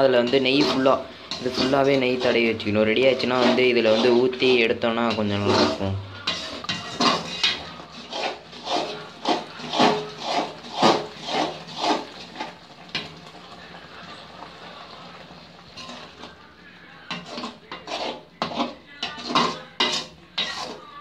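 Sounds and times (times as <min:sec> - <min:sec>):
metal ladle scraping a pan: 0:00.0 - 0:21.0.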